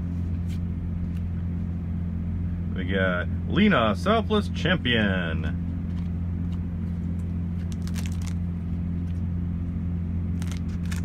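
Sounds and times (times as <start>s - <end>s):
truck engine idling: 0.0s - 11.0s
cards and foil pack crackling: 5.9s - 8.4s, 10.4s - 11.0s.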